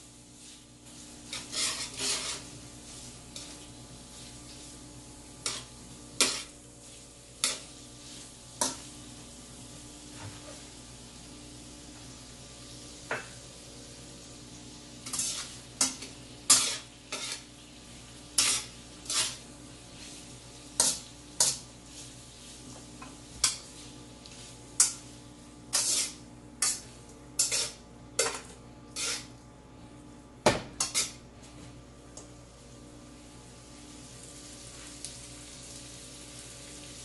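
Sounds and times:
utensil scraping against a wok: 0:00.0 - 0:09.0, 0:14.9 - 0:29.4, 0:30.8 - 0:31.2
faint sizzle: 0:00.0 - 0:37.0.

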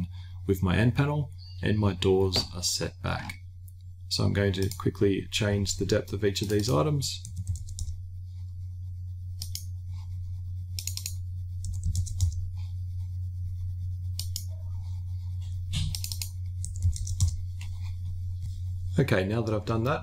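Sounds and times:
steady low hum: 0:00.0 - 0:20.0
mouse clicks: 0:14.2 - 0:14.5
keyboard keystrokes: 0:15.8 - 0:17.4.

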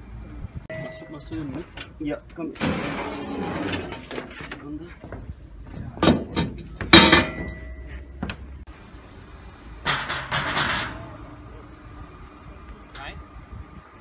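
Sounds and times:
metallic ring: 0:00.7 - 0:04.2, 0:06.6 - 0:08.2, 0:09.2 - 0:13.9
metal cabinet panels clanking: 0:02.6 - 0:04.6
metal staircase scraping clatter: 0:02.6 - 0:04.7.

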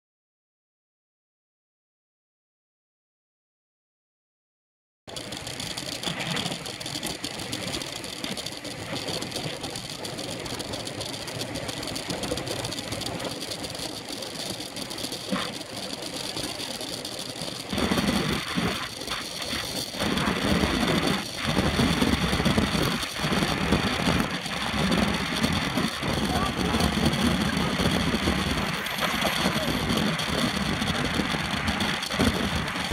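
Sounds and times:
road and tyre noise: 0:05.1 - 0:32.9
wind rushing over microphone: 0:17.7 - 0:32.9.

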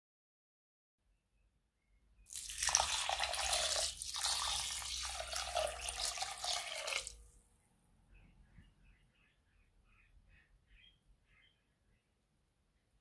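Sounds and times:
water pouring into bowl: 0:02.3 - 0:07.3.

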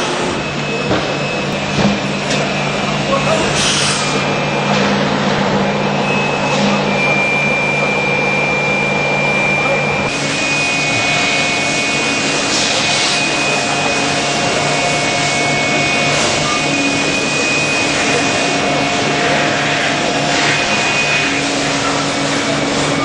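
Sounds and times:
thin high whine: 0:00.0 - 0:23.0
lathe cutting hiss: 0:10.1 - 0:23.0.

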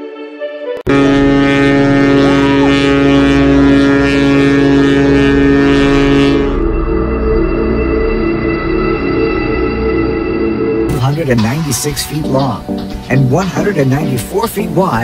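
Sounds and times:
ship engine drone: 0:00.9 - 0:15.0.

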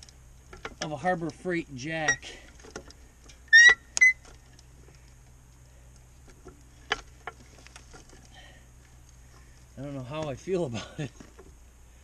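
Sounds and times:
floor jack squeaking: 0:03.5 - 0:04.2.

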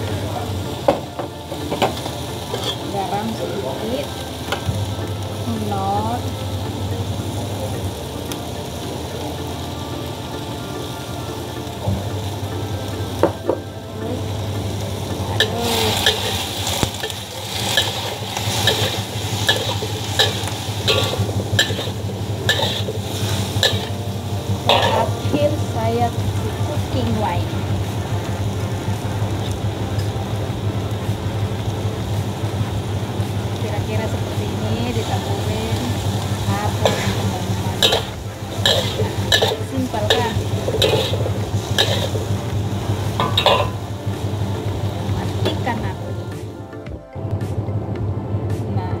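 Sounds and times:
vegetables sizzling in a wok: 0:00.0 - 0:46.5
spatula scraping and knocking pan: 0:15.4 - 0:24.0, 0:24.6 - 0:25.2, 0:36.8 - 0:42.3, 0:43.2 - 0:43.8.

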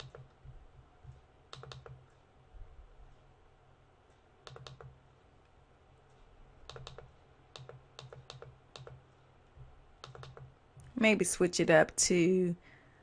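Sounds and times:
computer mouse clicks: 0:00.0 - 0:00.4, 0:01.0 - 0:02.3, 0:04.1 - 0:11.0.

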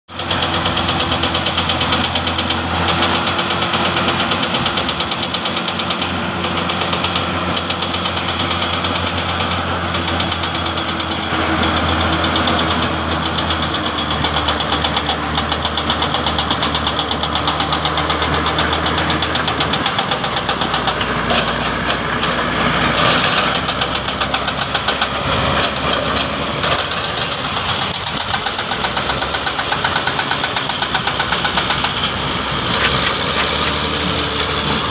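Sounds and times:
heavy diesel machinery engines: 0:00.1 - 0:34.9.

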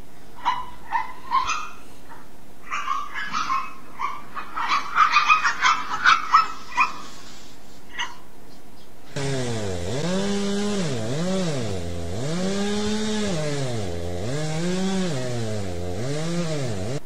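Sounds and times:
small dogs barking: 0:00.4 - 0:07.2, 0:07.9 - 0:08.3.

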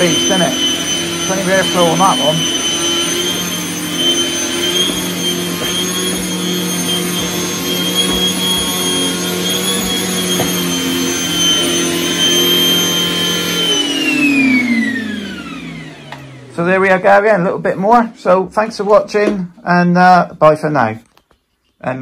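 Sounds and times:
motor spinning down: 0:00.0 - 0:16.6
vacuum cleaner whining: 0:00.0 - 0:20.8.

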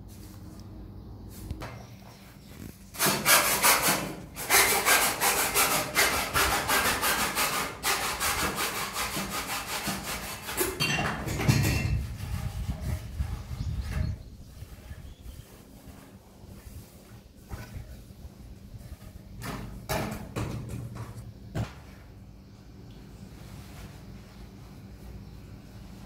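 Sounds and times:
rasping on plastic pipe: 0:11.9 - 0:16.8.

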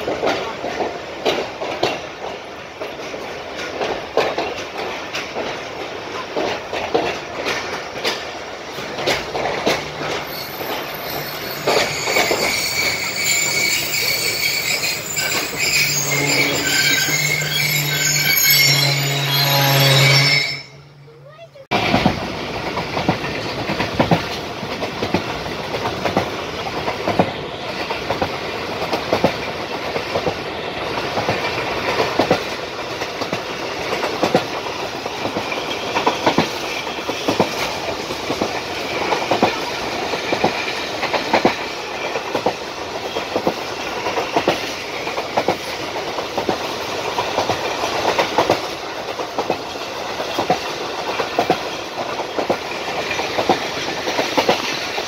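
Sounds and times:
clickety-clack over rail joints: 0:00.0 - 0:19.4, 0:21.2 - 0:55.0
train wheels rumbling on track: 0:00.0 - 0:55.0.

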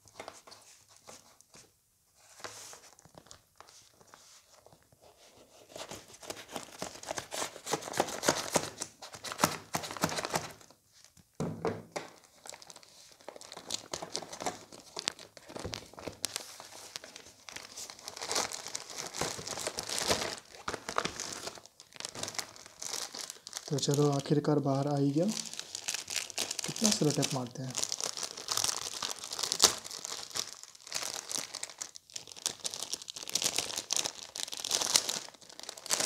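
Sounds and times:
plastic mailer crinkling and tearing: 0:02.3 - 0:04.8, 0:05.6 - 0:10.8, 0:12.0 - 0:36.0
plastic bag crinkling: 0:12.0 - 0:36.0.

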